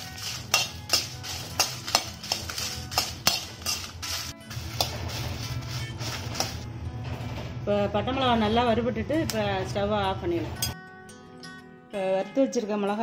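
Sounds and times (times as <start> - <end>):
metal ladle scraping metal pan: 0.0 - 6.7
background music: 0.0 - 13.0.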